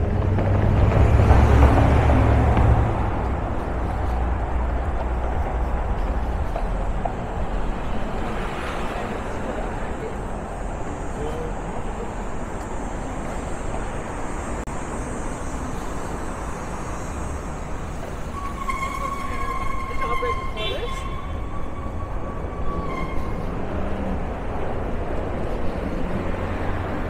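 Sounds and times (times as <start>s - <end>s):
passing cars: 0.0s - 27.0s.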